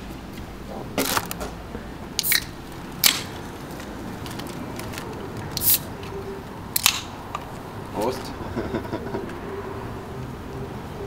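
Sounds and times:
low steady background noise: 0.0s - 11.0s
paper wrappers and cans crinkling: 1.0s - 1.6s, 3.6s - 5.7s.

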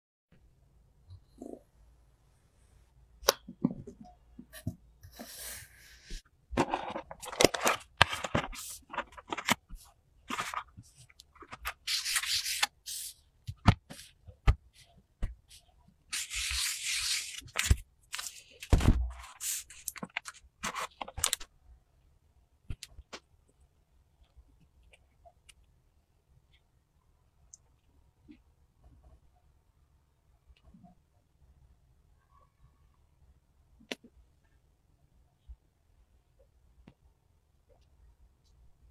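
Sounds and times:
plastic crinkling and scraping: 6.6s - 14.2s, 16.1s - 21.5s.

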